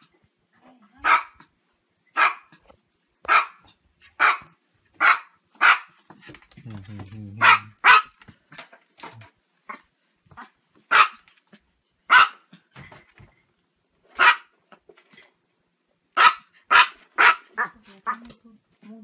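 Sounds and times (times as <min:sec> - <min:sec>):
small dog barking: 0:01.0 - 0:01.5, 0:02.2 - 0:02.6, 0:03.2 - 0:06.0, 0:07.4 - 0:08.2, 0:10.4 - 0:11.2, 0:12.1 - 0:12.5, 0:14.2 - 0:14.5, 0:16.2 - 0:18.3.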